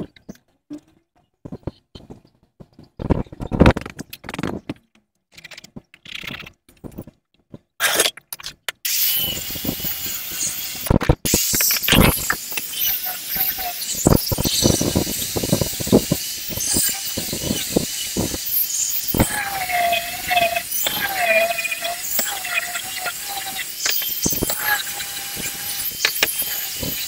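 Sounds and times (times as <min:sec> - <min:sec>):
angle grinder sanding: 0:08.9 - 0:27.0.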